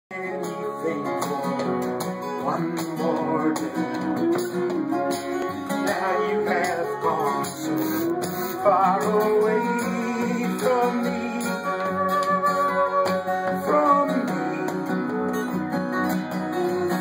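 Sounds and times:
acoustic guitar strumming: 0:00.1 - 0:17.0
wavering melody line: 0:04.1 - 0:17.0.

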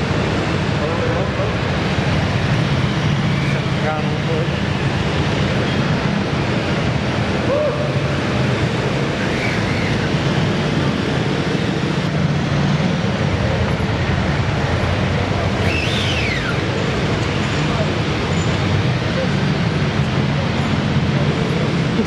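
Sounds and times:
busy indoor hall din: 0:00.0 - 0:22.0.

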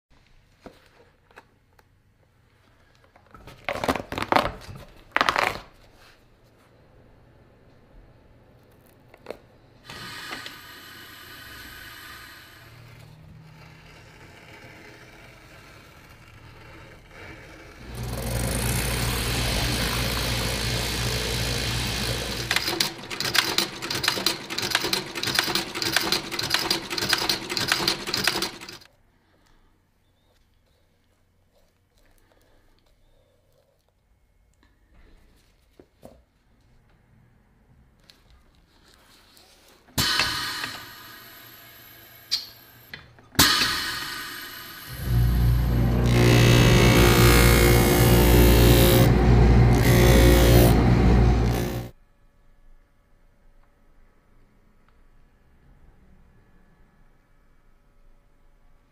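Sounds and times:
machine motor hum: 0:17.8 - 0:26.0, 0:44.3 - 0:51.9
stitching machine clatter: 0:17.8 - 0:28.9.

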